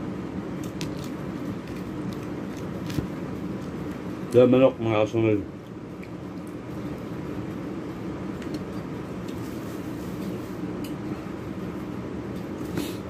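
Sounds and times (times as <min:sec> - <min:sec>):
low mechanical drone: 0:00.0 - 0:13.0.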